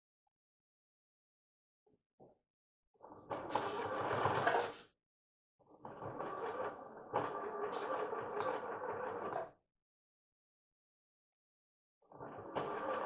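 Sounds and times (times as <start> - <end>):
sewing machine stitching: 3.4 - 4.7, 12.4 - 13.0.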